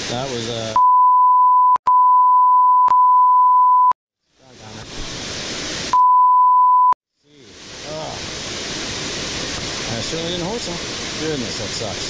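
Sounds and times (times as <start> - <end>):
censor bleep: 0.8 - 4.0, 5.9 - 7.0
waterfall rushing: 7.4 - 12.0.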